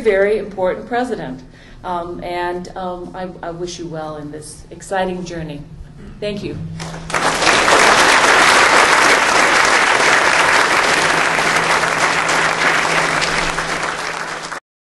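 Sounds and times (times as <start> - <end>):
audience applauding: 6.8 - 14.6.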